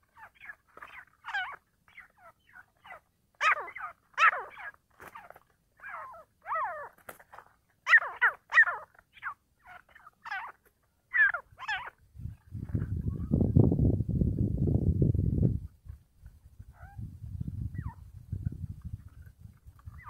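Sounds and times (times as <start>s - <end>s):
birds calling sharp notes: 0.0s - 13.5s.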